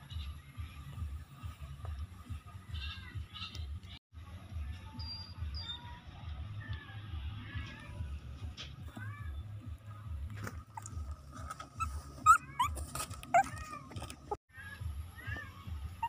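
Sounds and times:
puppies squeaking and whimpering: 0:10.6 - 0:14.4.

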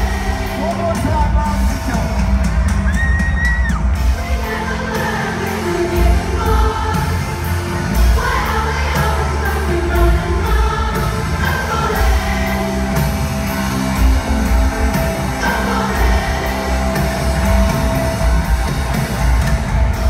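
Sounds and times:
live band playing pop-rock: 0:00.0 - 0:20.0.

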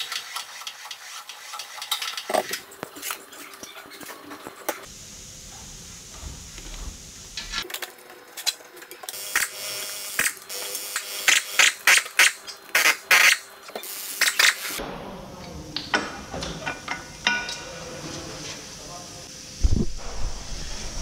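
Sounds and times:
pneumatic wrench bursts: 0:09.2 - 0:14.8.

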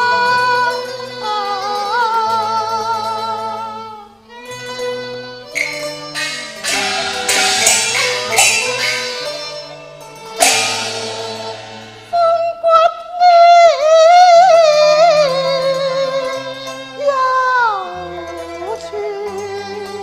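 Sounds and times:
low accompaniment notes: 0:05.5 - 0:13.0
cymbal crash: 0:05.6 - 0:12.7
person singing with vibrato: 0:05.6 - 0:20.0.

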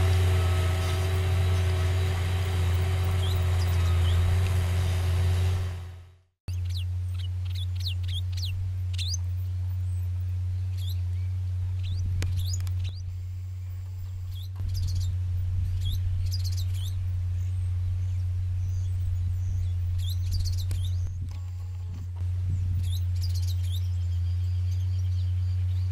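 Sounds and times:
tractor diesel engine droning: 0:00.0 - 0:06.3
birds chirping: 0:00.0 - 0:25.9.

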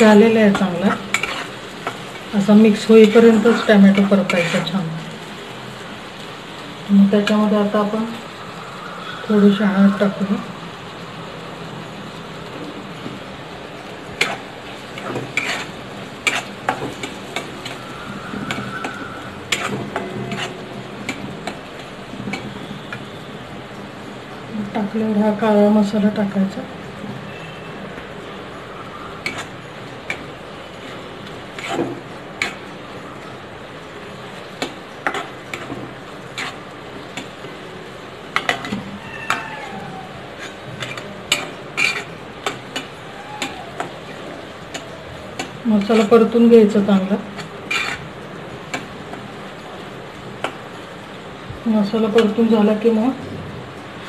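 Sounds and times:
spatula scraping a pan: 0:00.0 - 0:04.8, 0:14.2 - 0:23.0, 0:29.2 - 0:32.7, 0:34.6 - 0:37.6, 0:38.3 - 0:46.2, 0:47.3 - 0:48.9
faint frying sizzle: 0:00.0 - 0:54.0
steady cooking hiss: 0:00.0 - 0:54.0.

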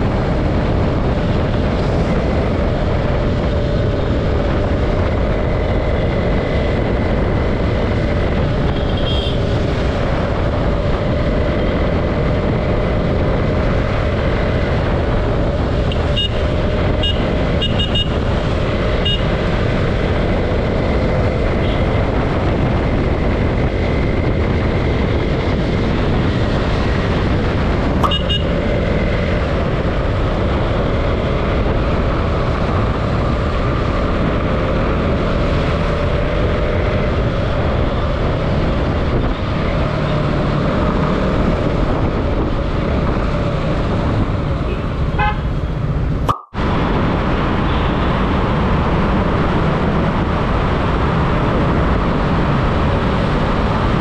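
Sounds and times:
wind on microphone: 0:00.0 - 0:54.0.

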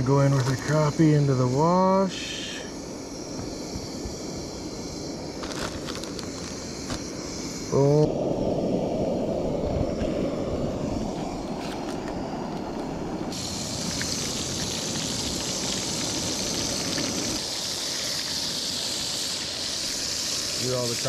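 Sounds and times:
bright hiss: 0:00.0 - 0:21.0
low rushing noise: 0:07.2 - 0:13.7
fish frying in oil: 0:13.3 - 0:21.0.

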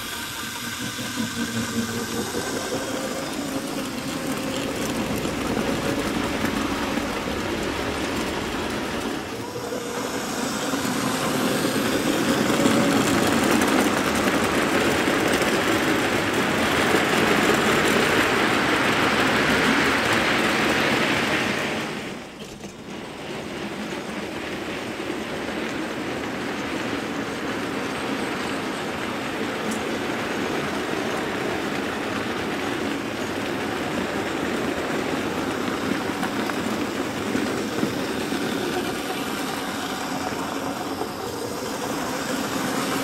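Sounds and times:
model train motor humming: 0:00.0 - 0:43.0
wagon wheels rattling over track: 0:00.0 - 0:43.0.

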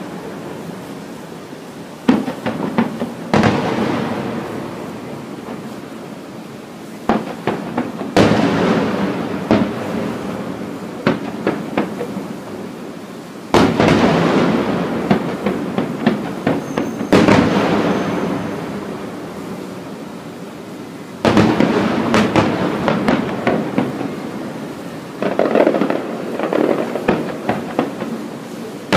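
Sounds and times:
firework shells bursting: 0:02.0 - 0:05.8, 0:07.0 - 0:12.7, 0:13.4 - 0:19.2, 0:21.2 - 0:28.9
heavy firework booms echoing: 0:02.0 - 0:05.8, 0:07.0 - 0:12.8, 0:13.5 - 0:19.8, 0:21.2 - 0:28.9.

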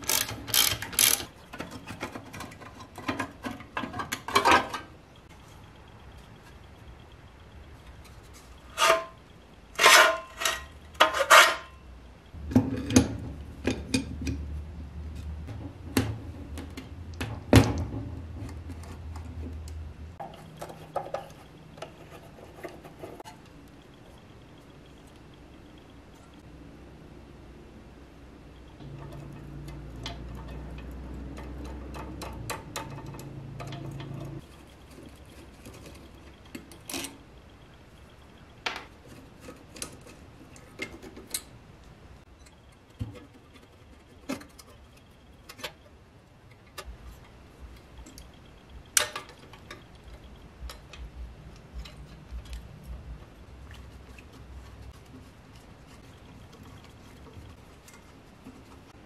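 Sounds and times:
low steady hum: 0:00.0 - 0:59.0
metal engine parts clinking: 0:28.8 - 0:37.2.

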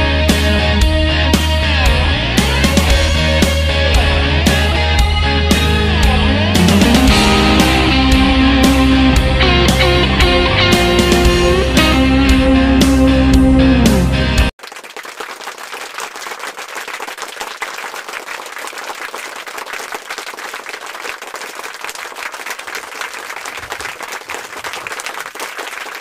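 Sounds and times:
guitar music: 0:00.0 - 0:14.5
crowd clapping: 0:01.4 - 0:12.9, 0:13.9 - 0:26.0.

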